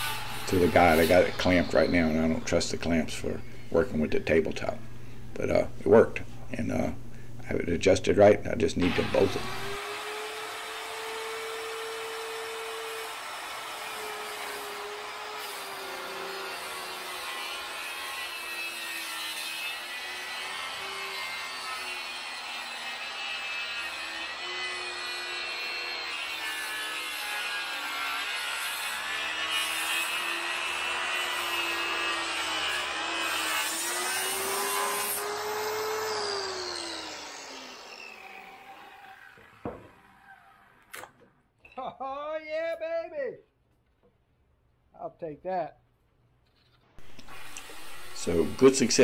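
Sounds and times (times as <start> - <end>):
circular saw cutting wood: 0.0 - 3.0, 8.8 - 41.2, 47.0 - 49.0
circular saw motor whine: 34.3 - 40.9.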